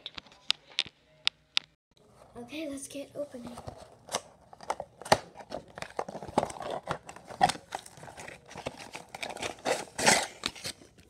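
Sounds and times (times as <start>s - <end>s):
toy box being opened: 3.5s - 11.0s.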